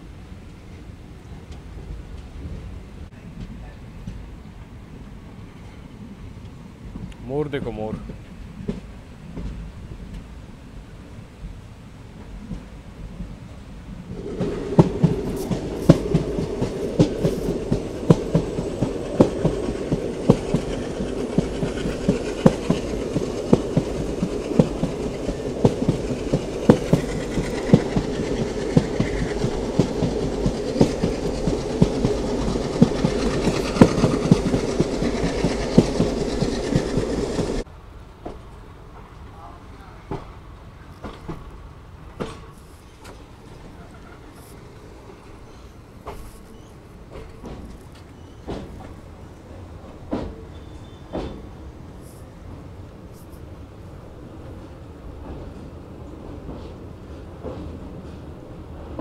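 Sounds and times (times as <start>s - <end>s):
train rumbling at speed: 0.0s - 59.0s
wheels clacking over rail joints: 14.1s - 39.1s, 41.0s - 51.6s.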